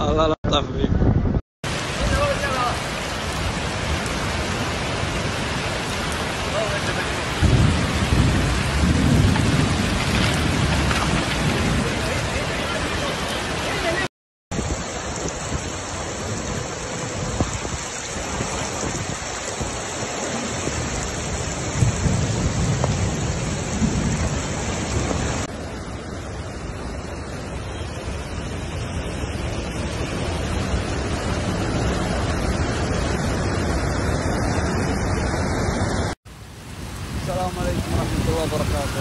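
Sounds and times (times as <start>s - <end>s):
heavy rain: 1.6s - 39.0s
rushing floodwater: 1.6s - 39.0s.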